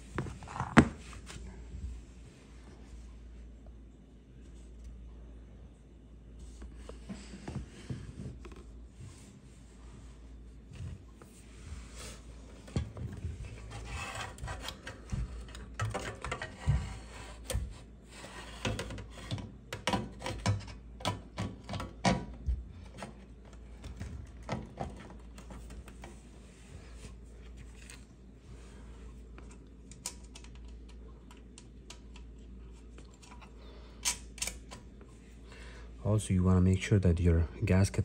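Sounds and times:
metal scraping and rubbing: 0:13.5 - 0:15.0.

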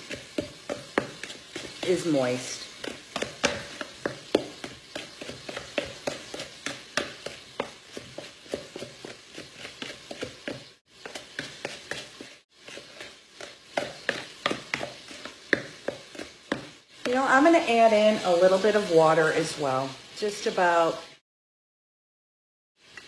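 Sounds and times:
wooden spoon stirring batter in bowl: 0:00.0 - 0:17.9.

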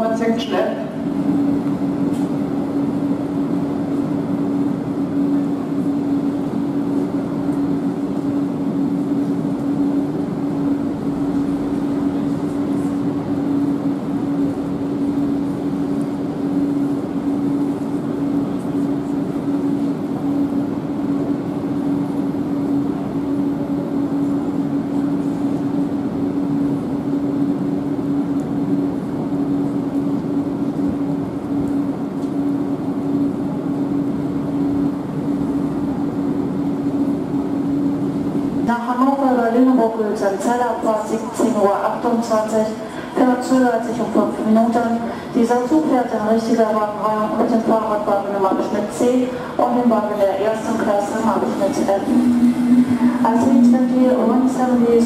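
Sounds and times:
electric hum: 0:00.0 - 0:36.4, 0:37.0 - 0:55.0
train rumbling along tracks: 0:00.0 - 0:55.0.

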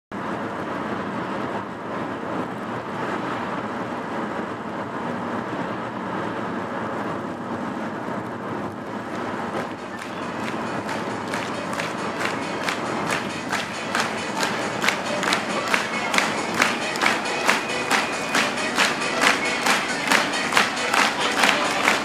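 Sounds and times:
car road and engine noise: 0:00.2 - 0:13.8.

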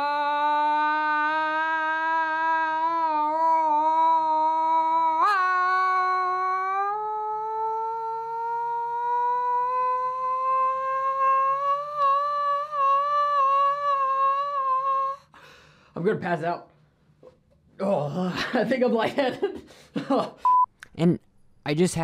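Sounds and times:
man singing a long note: 0:00.0 - 0:15.3.

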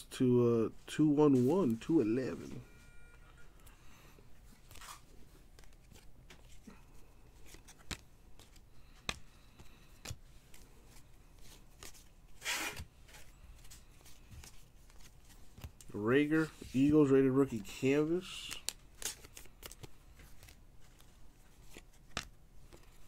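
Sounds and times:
trading cards rustling and clicking: 0:03.6 - 0:23.0.

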